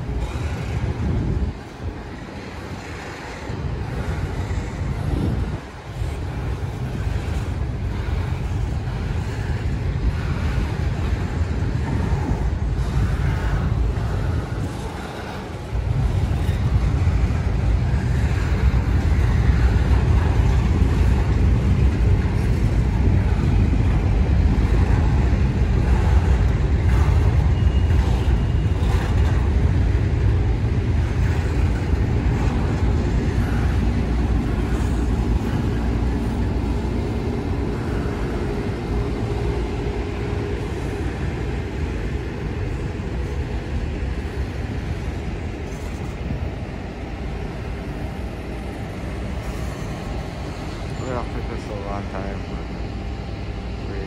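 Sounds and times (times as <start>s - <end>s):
freight train wheels rumbling on rails: 0.0s - 54.0s.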